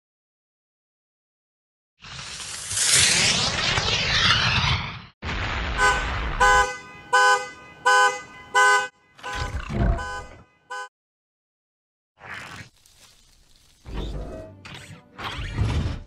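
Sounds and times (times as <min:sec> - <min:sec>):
car horn honks: 0:05.8 - 0:10.9.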